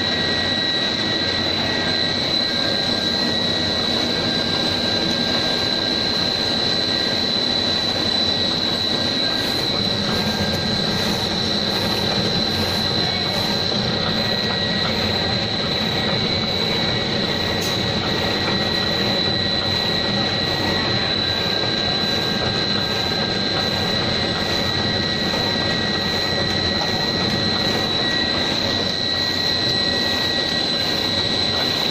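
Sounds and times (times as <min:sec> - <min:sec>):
high-pitched machine whine: 0:00.0 - 0:31.9
machinery running: 0:00.0 - 0:31.9.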